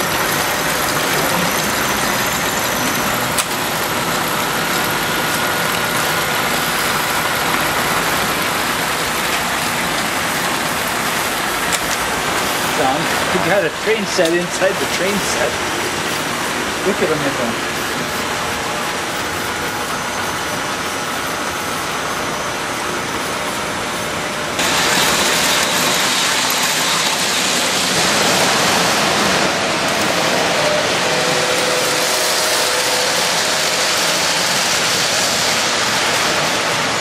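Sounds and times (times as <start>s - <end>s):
toy trains rolling on metal track: 0.0s - 12.2s, 24.6s - 36.5s.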